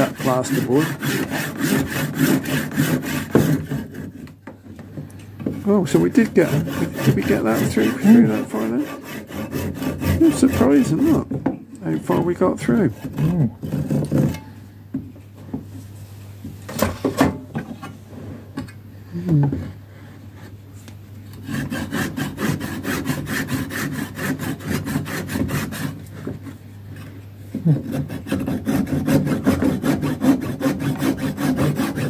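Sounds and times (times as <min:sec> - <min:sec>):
handsaw rasping through wood: 0:00.0 - 0:04.3, 0:05.6 - 0:11.3, 0:11.9 - 0:14.4, 0:21.4 - 0:26.6, 0:27.6 - 0:32.0.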